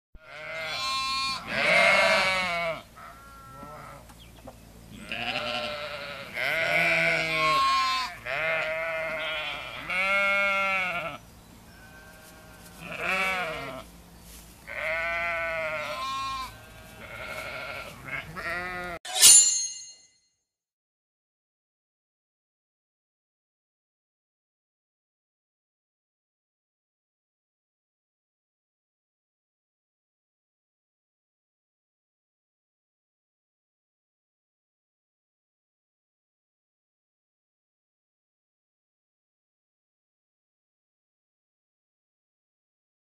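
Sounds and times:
long wavering bleats: 0.2s - 4.1s, 4.9s - 13.9s, 14.7s - 19.0s
sharp high-pitched sound: 19.1s - 20.1s.

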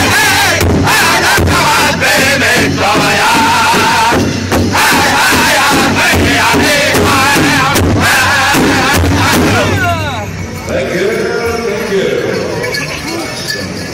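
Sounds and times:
group singing in chant: 0.0s - 10.0s
large hide drum beats: 0.0s - 10.7s.

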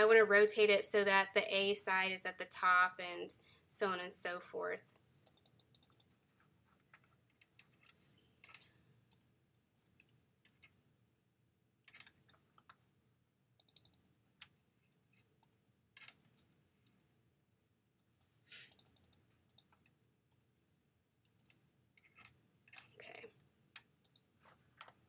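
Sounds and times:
computer mouse clicks: 4.9s - 10.8s, 11.8s - 12.8s, 13.6s - 17.1s, 18.5s - 25.0s.

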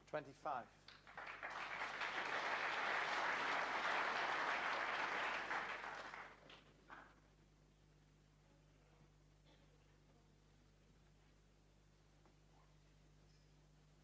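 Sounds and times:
audience applauding: 0.9s - 7.1s.

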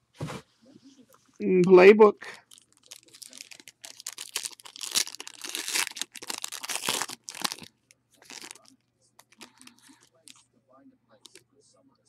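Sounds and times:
foil wrapper crinkling and tearing: 2.4s - 10.4s.

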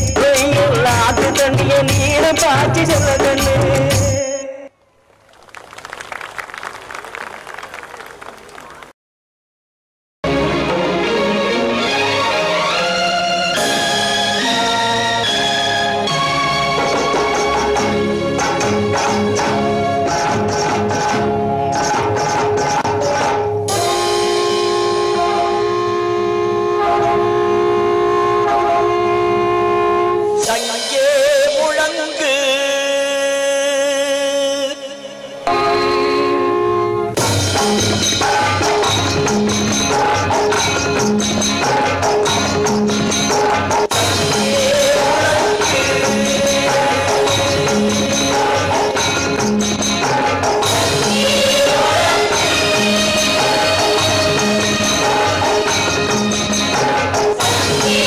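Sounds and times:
jingling percussion: 0.0s - 4.6s, 37.2s - 58.0s
song over loudspeakers: 0.0s - 4.8s, 10.2s - 58.0s.

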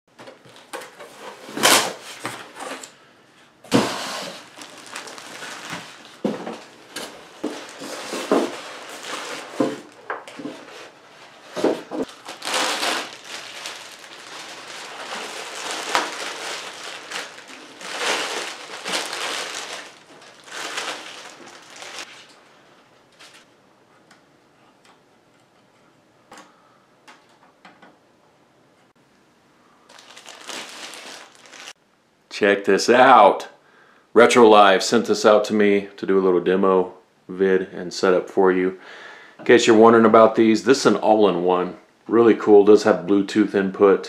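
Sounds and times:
plastic bags rustling: 3.7s - 23.5s, 29.9s - 31.8s.

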